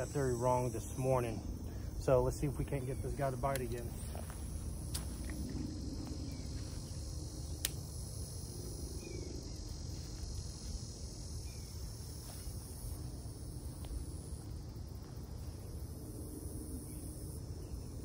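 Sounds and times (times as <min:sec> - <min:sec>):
insects chirping: 0:00.0 - 0:18.0
low rumble: 0:00.7 - 0:11.4.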